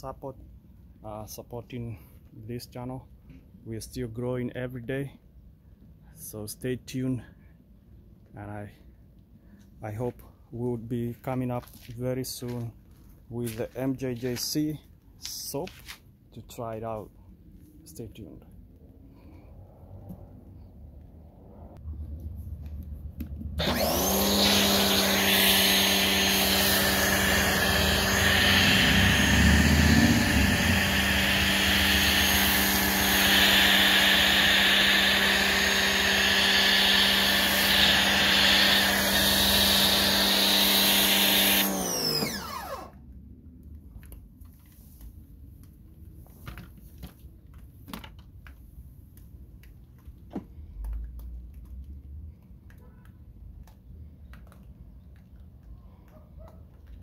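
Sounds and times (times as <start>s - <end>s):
pressure washer motor hum: 23.6s - 43.0s.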